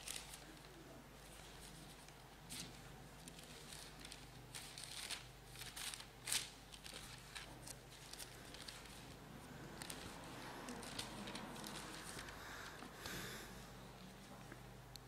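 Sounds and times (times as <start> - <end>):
thin pages turning: 1.3 - 9.2, 9.8 - 12.8.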